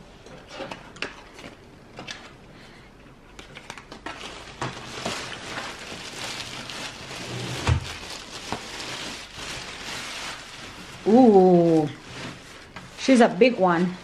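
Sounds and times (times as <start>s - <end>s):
paper packaging crinkling: 3.4s - 13.5s.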